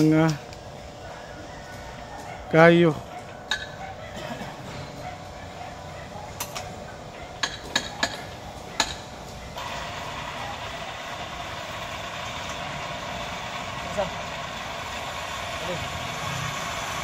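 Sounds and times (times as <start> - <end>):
sharp clicks and knocks: 7.4 - 9.0
motor running: 9.3 - 17.0.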